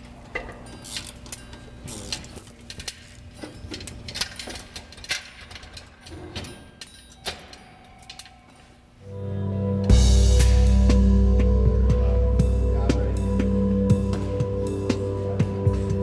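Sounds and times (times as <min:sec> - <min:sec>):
metallic tool clinks and knocks: 0:02.7 - 0:08.4
faint steady hum: 0:06.8 - 0:16.0.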